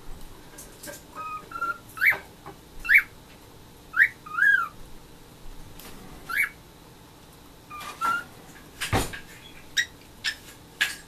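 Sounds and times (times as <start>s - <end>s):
cockatiel whistling: 1.2s - 2.2s, 2.8s - 3.1s, 3.9s - 4.8s, 6.3s - 6.6s.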